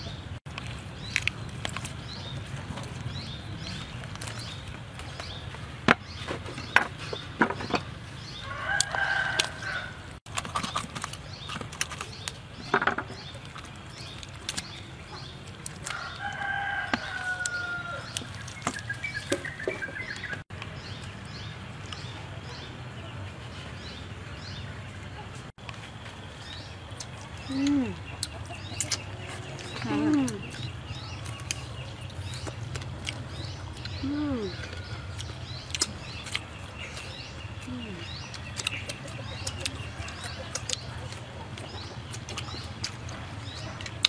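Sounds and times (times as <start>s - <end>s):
rooster crowing: 8.4s - 10.1s, 15.9s - 18.2s.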